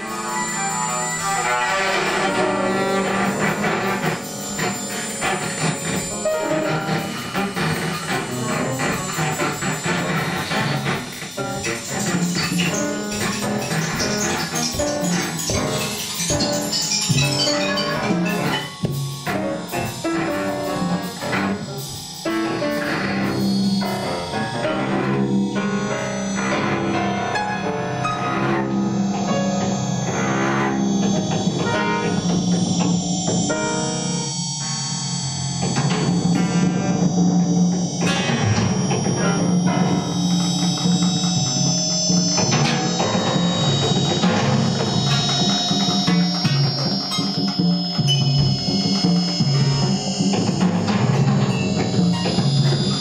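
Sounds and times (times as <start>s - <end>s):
drum kit and cymbals: 0.0s - 25.8s
piano clusters: 0.0s - 53.0s
bowed cello low notes: 0.9s - 34.6s.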